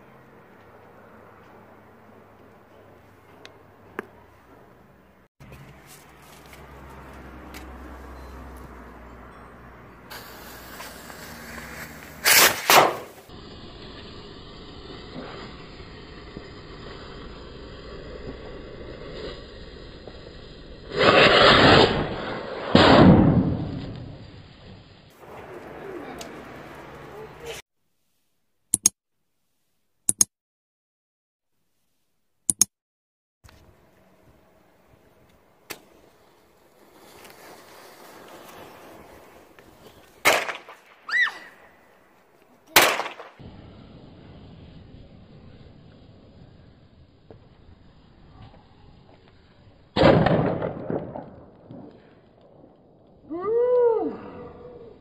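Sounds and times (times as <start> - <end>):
firecracker bang: 10.1 - 16.6, 20.8 - 26.5, 40.2 - 41.5, 42.7 - 45.8, 49.9 - 52.8
firecracker rushing: 10.1 - 27.6, 33.7 - 55.0.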